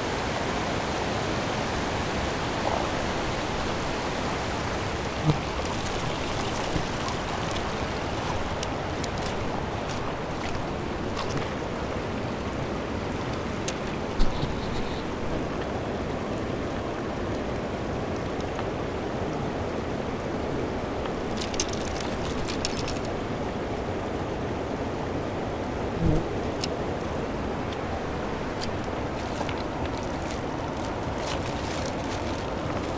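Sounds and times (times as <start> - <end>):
river rushing over pebbles: 0.0 - 32.9
small clicks on stones: 21.4 - 23.1.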